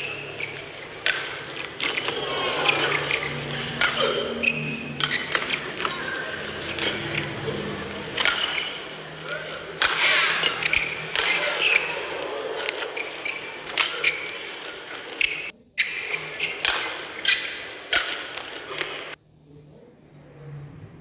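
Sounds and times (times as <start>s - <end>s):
racket hitting shuttlecock: 0.0s - 19.2s
crowd hum in large hall: 0.0s - 21.0s.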